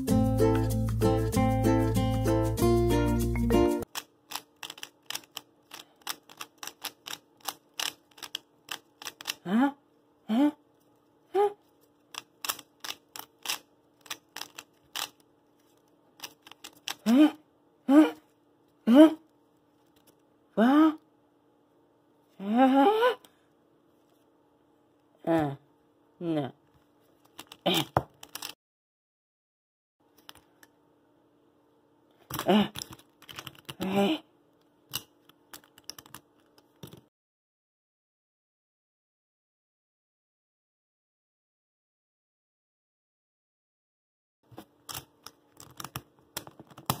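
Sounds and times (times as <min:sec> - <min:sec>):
rubik's cube turning clicks: 0:03.8 - 0:09.4, 0:12.1 - 0:15.2, 0:16.2 - 0:17.0
faint steady hum: 0:07.2 - 0:27.3.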